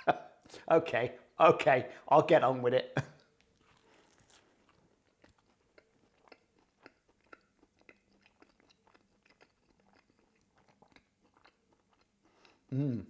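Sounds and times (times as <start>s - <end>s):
chewing food: 3.1s - 12.7s.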